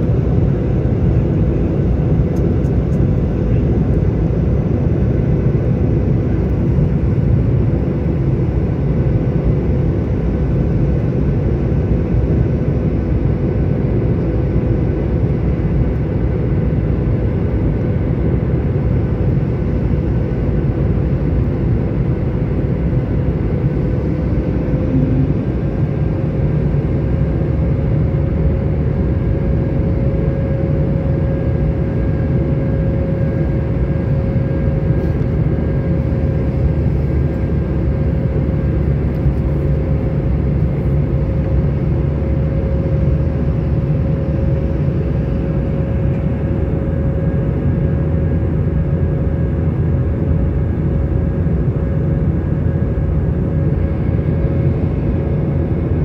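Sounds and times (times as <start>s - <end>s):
jet engine and airflow roar: 0.0s - 56.0s
faint steady whine: 17.4s - 56.0s.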